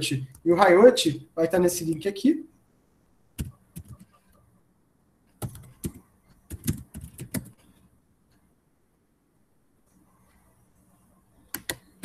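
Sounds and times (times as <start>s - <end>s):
typing on computer keyboard: 3.4s - 4.2s, 5.3s - 7.8s, 11.5s - 12.0s.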